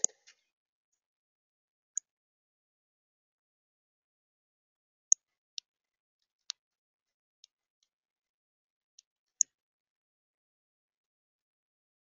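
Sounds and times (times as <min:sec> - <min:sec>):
bird making sharp high clicks: 0:00.0 - 0:00.4.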